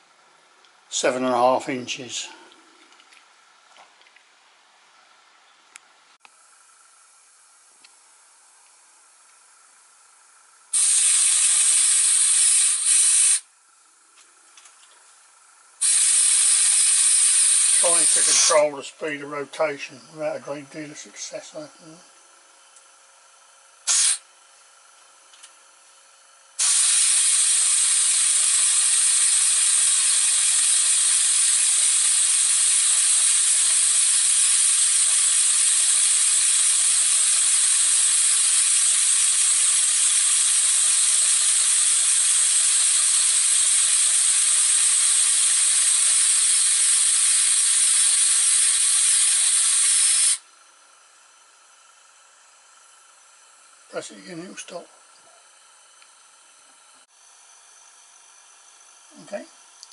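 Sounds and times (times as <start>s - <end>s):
compressed air hissing: 8.9s - 13.5s, 15.3s - 22.6s, 23.3s - 25.0s, 26.5s - 56.3s.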